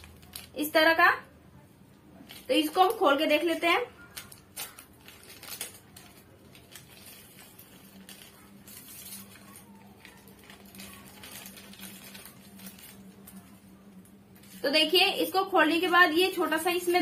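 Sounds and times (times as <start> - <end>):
plastic packet crinkling: 0.0 - 0.9, 2.2 - 17.0.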